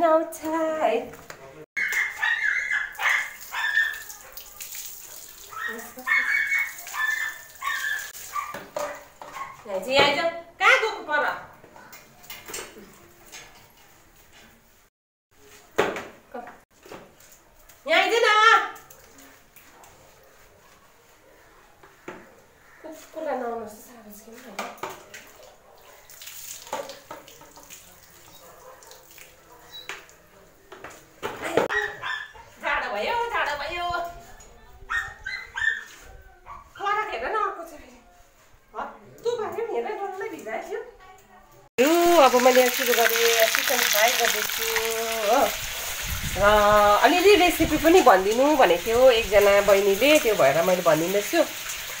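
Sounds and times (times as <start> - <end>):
water splashing on dog's coat: 2.9 - 8.7, 25.2 - 30.3, 41.8 - 52.0
water dripping: 2.9 - 8.8, 25.0 - 30.2, 41.8 - 52.0.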